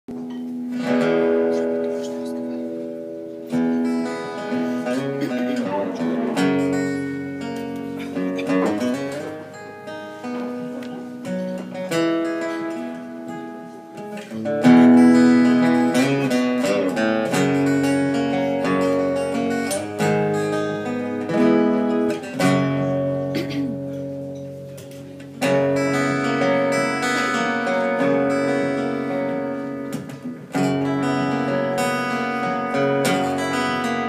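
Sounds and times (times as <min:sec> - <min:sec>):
acoustic guitar chords: 0:00.1 - 0:34.0.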